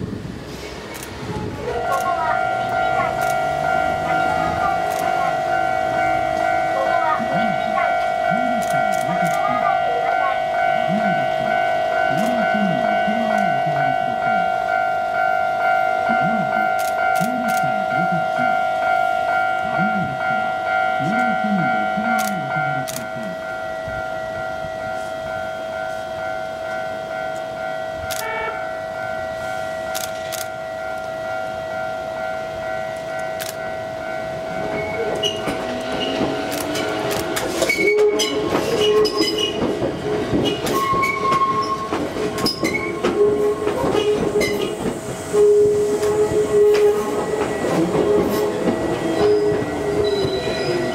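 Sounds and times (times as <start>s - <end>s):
electric train hum: 0.0s - 50.9s
wheels clacking over rail joints: 34.4s - 50.9s
wheel squeals: 37.5s - 39.8s, 40.4s - 43.2s, 48.3s - 50.9s.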